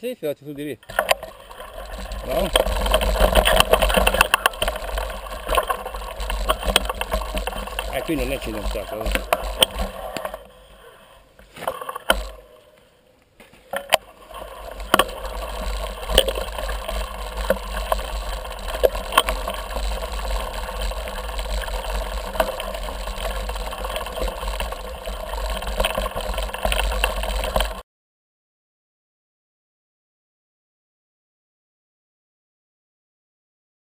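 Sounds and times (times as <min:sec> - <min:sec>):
bike clicks and rattles: 0:00.8 - 0:12.6, 0:13.4 - 0:27.8
tyre noise on dirt: 0:00.8 - 0:27.8.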